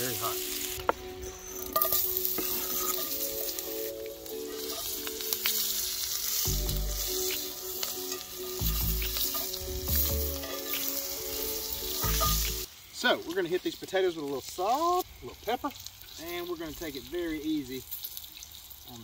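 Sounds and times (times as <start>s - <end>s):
potatoes sizzling in skillet: 0.0s - 19.0s
metal spatula scraping pan: 1.6s - 3.8s.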